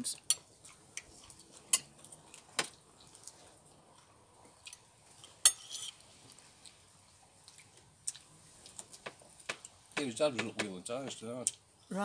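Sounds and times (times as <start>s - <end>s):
cutlery clinking on a plate: 5.4s - 6.0s.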